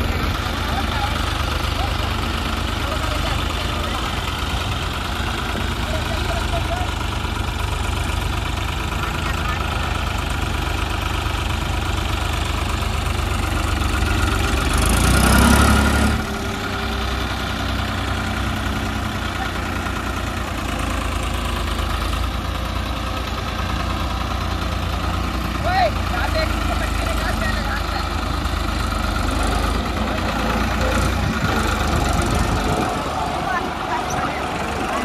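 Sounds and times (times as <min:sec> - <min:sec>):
tractor diesel engines running: 0:00.0 - 0:35.0
engine revving: 0:12.1 - 0:22.4, 0:23.4 - 0:35.0.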